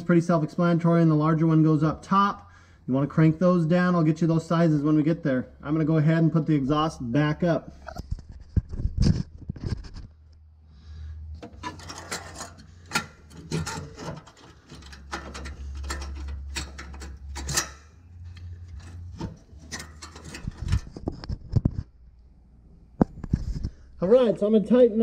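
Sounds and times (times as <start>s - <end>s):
metal scraping and clunking: 11.4s - 21.9s.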